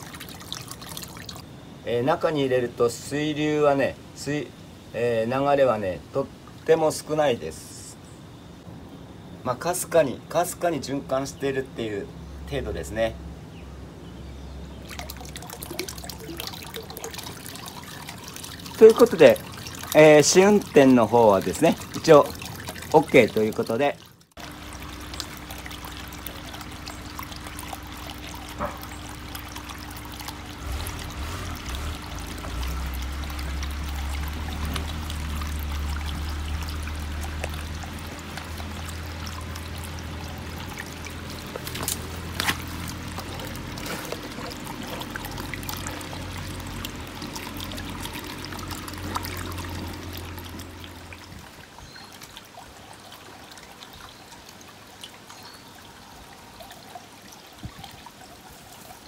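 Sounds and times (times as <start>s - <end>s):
aquarium pump burbling trickle: 0.0s - 3.9s, 14.4s - 59.0s.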